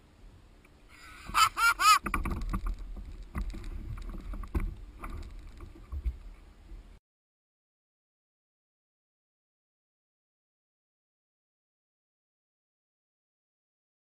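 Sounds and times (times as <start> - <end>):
man laughing: 1.0 - 2.0
water sloshing: 1.4 - 6.9.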